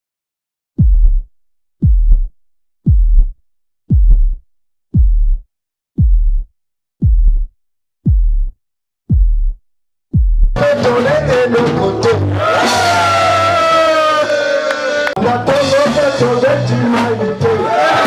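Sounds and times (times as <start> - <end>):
deep electronic bass booms: 0.8 - 12.4
loud music: 10.6 - 18.0.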